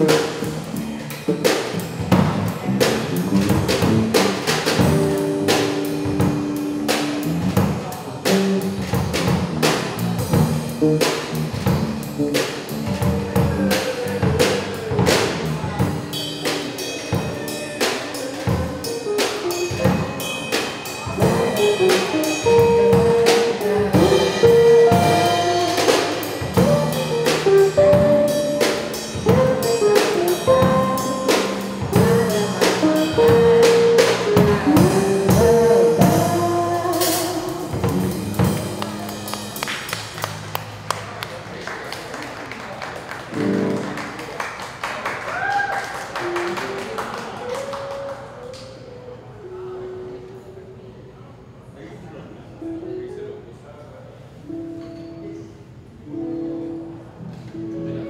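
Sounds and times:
live band playing: 0.0s - 42.0s, 43.1s - 44.4s, 45.3s - 50.2s
woman singing: 31.9s - 33.4s, 34.4s - 38.6s.

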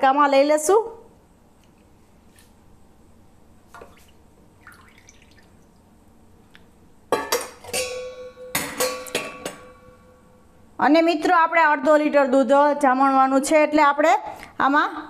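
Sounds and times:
milk pouring into steel container: 4.6s - 5.7s
steel utensils clinking: 7.2s - 10.0s.

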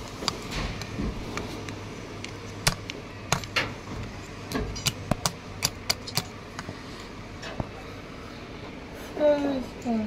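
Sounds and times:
steady low hum: 0.0s - 10.0s
sharp metal clicks: 2.2s - 3.7s, 4.5s - 6.4s.

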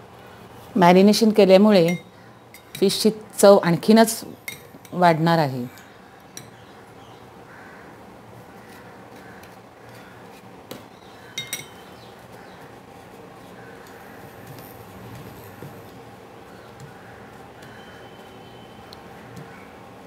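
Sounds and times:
faint room hum: 0.0s - 20.0s
crockery clinking: 1.8s - 2.9s, 11.3s - 12.0s, 14.0s - 16.0s.

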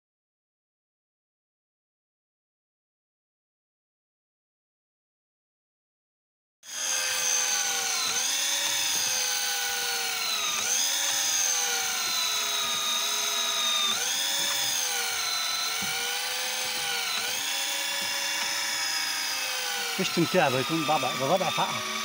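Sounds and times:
electric fishing reel motor whining: 6.6s - 22.0s.

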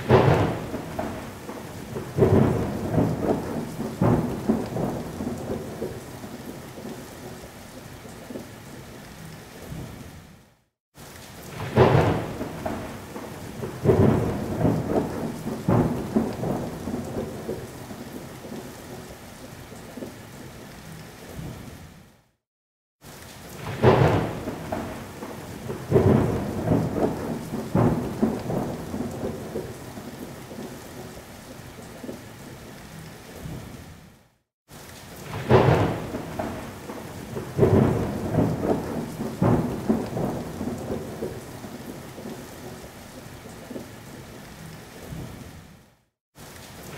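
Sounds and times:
thunder rolling: 0.0s - 6.0s, 11.5s - 17.7s, 23.6s - 29.8s, 35.2s - 42.4s
rain falling steadily: 0.0s - 22.4s, 23.0s - 46.9s.

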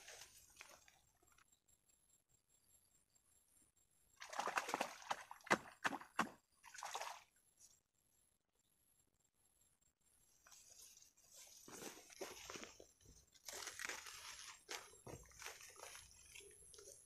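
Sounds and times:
water splashing and sloshing: 0.0s - 1.1s, 4.2s - 7.4s, 11.3s - 17.0s.

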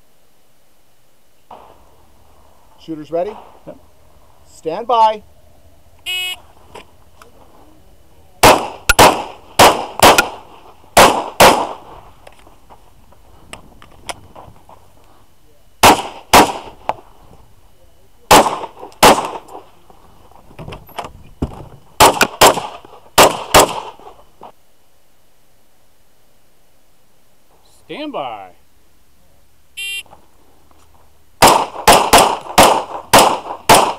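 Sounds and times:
pistol shots: 8.4s - 11.9s, 15.8s - 16.8s, 18.3s - 19.6s, 22.0s - 24.0s, 31.4s - 33.9s.

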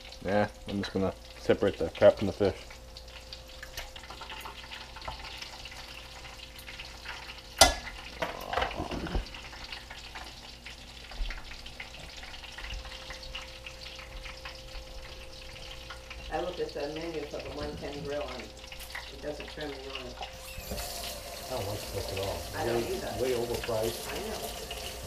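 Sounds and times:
fish frying in oil: 0.0s - 25.0s.

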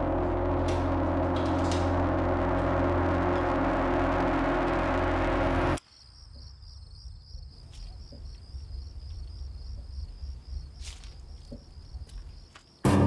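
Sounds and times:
low steady rumble: 0.0s - 5.8s
crickets chirping: 5.8s - 12.8s.

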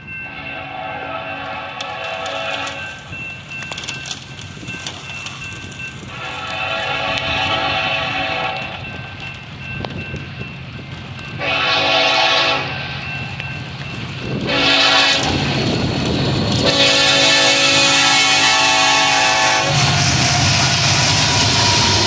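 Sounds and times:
locomotive and wheels rumbling: 0.0s - 22.0s
locomotive air horn blasts: 0.3s - 2.9s, 6.1s - 8.8s, 11.4s - 13.0s, 14.4s - 15.6s, 16.6s - 22.0s.

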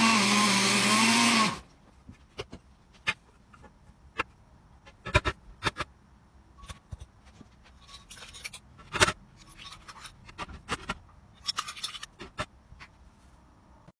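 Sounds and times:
metal spoon scraping glass bowl: 7.6s - 8.6s, 9.4s - 10.4s.

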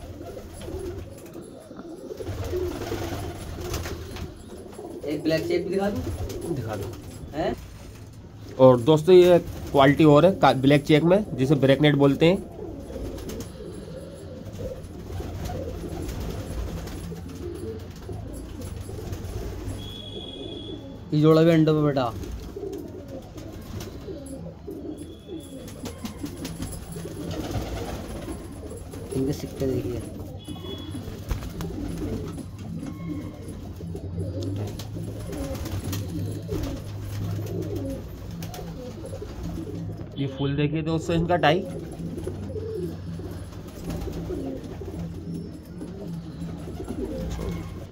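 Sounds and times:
pigeons cooing: 0.0s - 40.2s, 40.8s - 47.9s.

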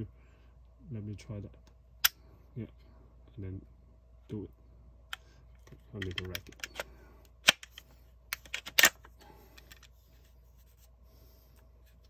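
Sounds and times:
gun bolt racking clacks: 8.4s - 9.9s.

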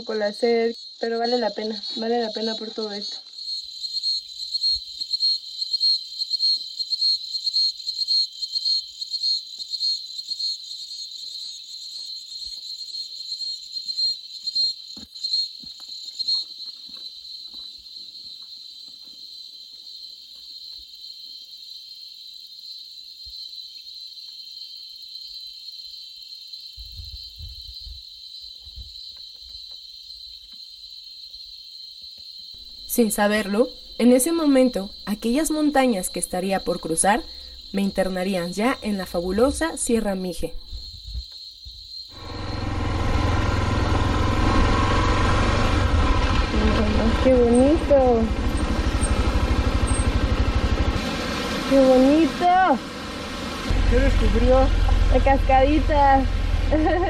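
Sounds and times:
insect chorus buzzing: 0.0s - 57.0s
faint low rumbles: 42.2s - 57.0s
higher insect buzzing: 42.2s - 57.0s.

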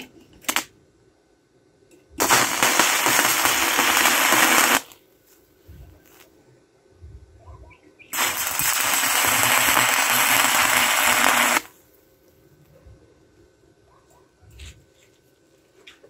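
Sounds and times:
welding arc crackling: 0.4s - 0.7s, 2.2s - 5.0s, 8.2s - 11.8s.

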